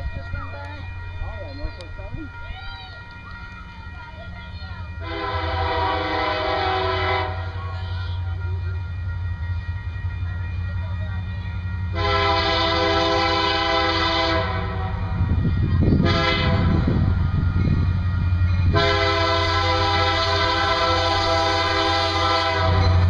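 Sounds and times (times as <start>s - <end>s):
train air horn blasts: 5.0s - 7.6s, 11.9s - 15.3s, 16.0s - 17.4s, 18.7s - 23.0s.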